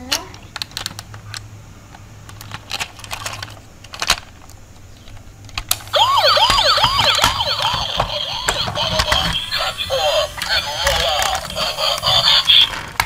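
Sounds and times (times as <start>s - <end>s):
warbling toy siren: 5.9s - 12.8s.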